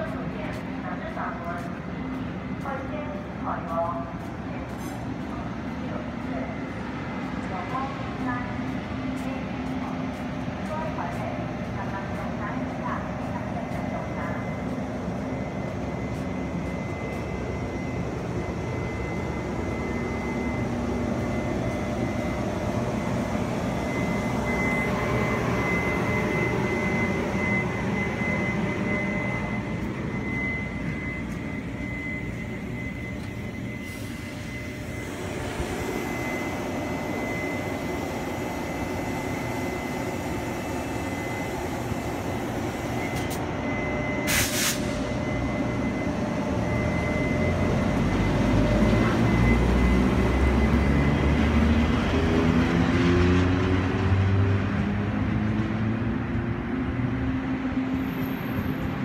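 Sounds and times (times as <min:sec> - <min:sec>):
electric locomotive roar: 0:00.0 - 0:59.0
high-pitched whine: 0:00.0 - 0:59.0
sharp air hiss: 0:44.3 - 0:45.0.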